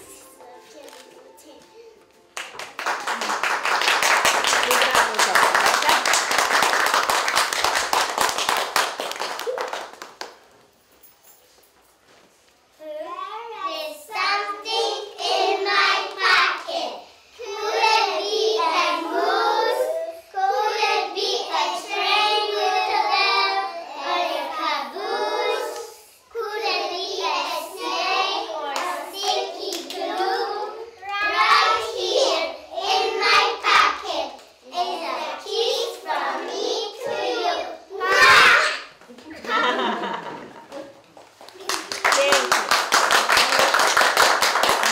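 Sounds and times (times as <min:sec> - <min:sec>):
children singing: 0:00.0 - 0:00.4, 0:14.1 - 0:38.9.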